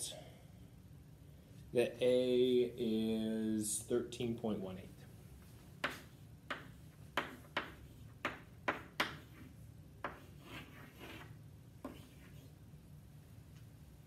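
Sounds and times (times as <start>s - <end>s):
chalk tapping on chalkboard: 5.8s - 12.5s
chalk scraping on chalkboard: 5.8s - 12.6s.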